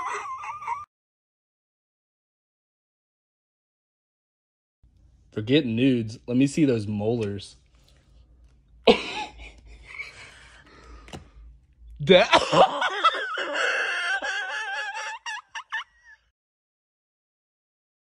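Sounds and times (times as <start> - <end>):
woman laughing high-pitched: 0.0 - 0.9, 12.4 - 16.3.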